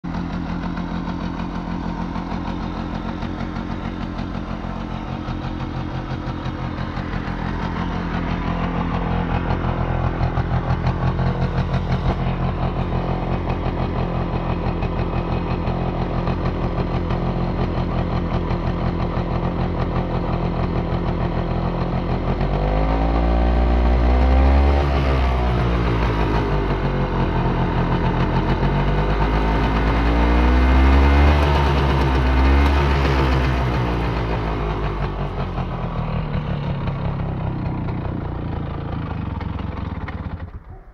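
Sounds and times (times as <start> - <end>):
moped engine idling and revving: 0.0 - 40.9.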